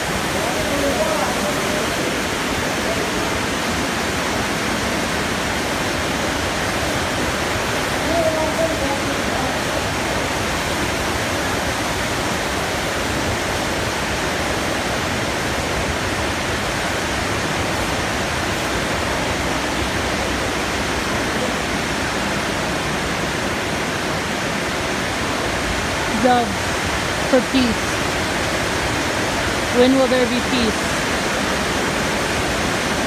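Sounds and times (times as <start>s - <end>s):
water rushing: 0.0s - 33.0s.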